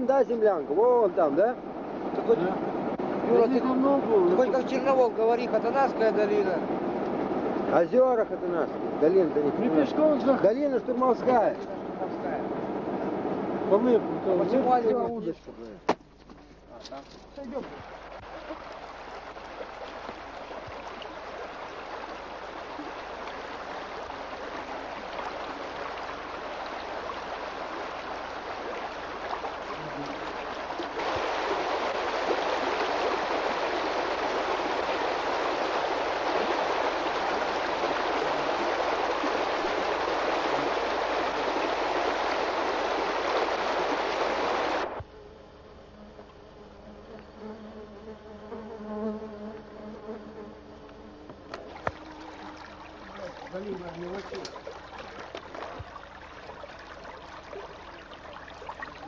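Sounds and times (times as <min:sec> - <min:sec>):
faint buzzing hum: 0:00.0 - 0:59.0
water rushing over rocks: 0:17.6 - 0:45.0, 0:51.6 - 0:59.0.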